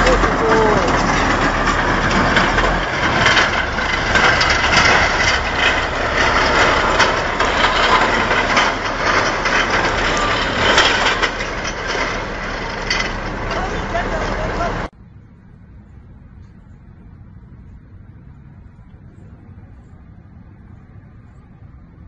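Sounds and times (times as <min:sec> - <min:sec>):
steel pipe tumbling down slope: 0:00.0 - 0:14.9.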